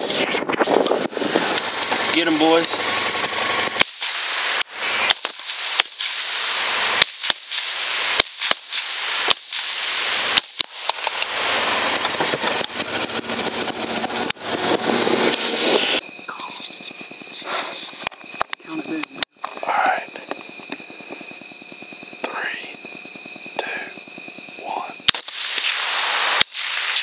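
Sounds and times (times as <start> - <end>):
steady rushing noise: 0.0 - 7.0, 7.6 - 27.0
rifle shots: 3.0 - 11.7, 24.2 - 27.0.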